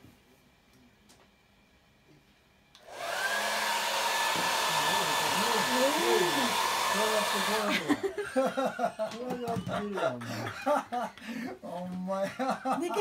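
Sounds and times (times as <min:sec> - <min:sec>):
hair dryer whining and blowing: 0:02.7 - 0:08.1.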